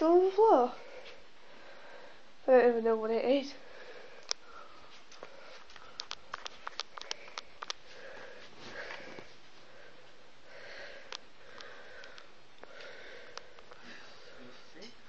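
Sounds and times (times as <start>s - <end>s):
faint room noise: 0.0s - 15.0s
small sharp clicks: 5.7s - 7.8s.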